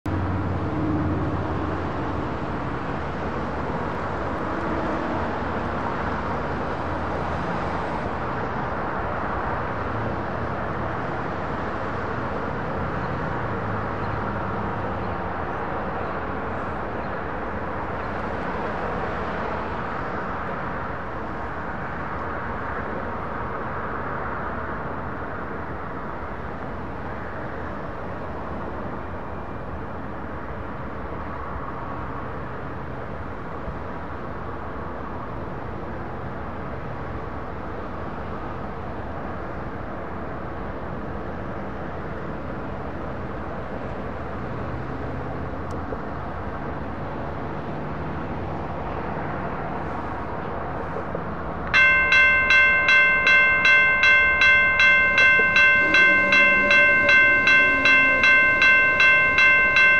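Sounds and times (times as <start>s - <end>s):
vehicle rumble: 39.4s - 59.9s.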